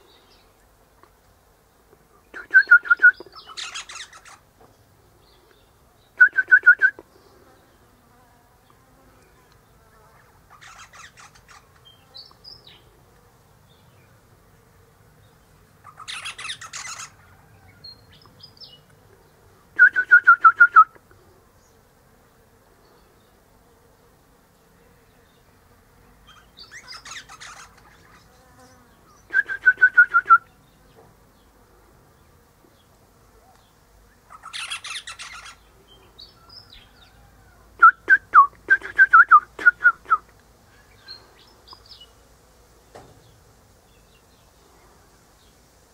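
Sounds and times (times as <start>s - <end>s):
parrot calling: 10.5s - 11.6s, 15.8s - 17.2s, 26.3s - 28.2s, 34.3s - 35.6s
faint high whistles: 29.3s - 30.5s.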